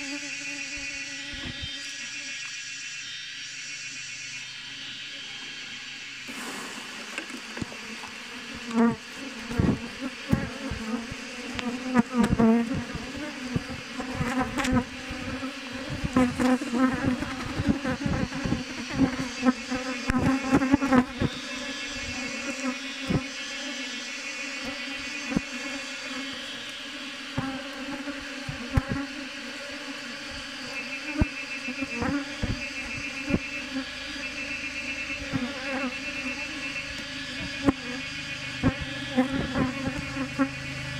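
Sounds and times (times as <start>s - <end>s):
bee swarm buzzing: 0.0s - 3.1s, 4.8s - 40.9s.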